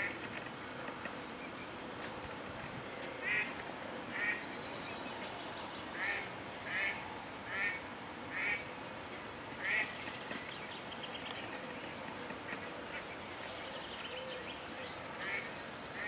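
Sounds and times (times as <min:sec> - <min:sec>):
duck quacking: 0:06.0 - 0:08.6.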